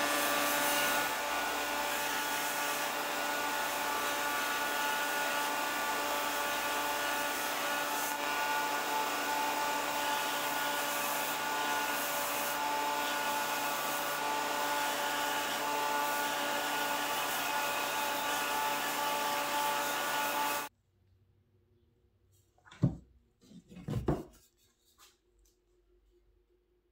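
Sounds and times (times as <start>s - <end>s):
belt sander sanding wood: 0.0s - 20.7s.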